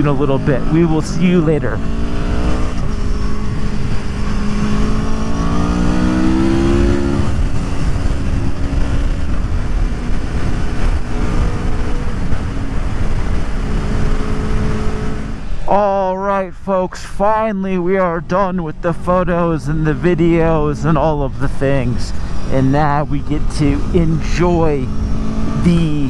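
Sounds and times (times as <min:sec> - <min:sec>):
motorcycle engine revving: 0:00.0 - 0:15.6, 0:22.1 - 0:26.0
wind rush: 0:00.0 - 0:15.7, 0:17.3 - 0:26.0.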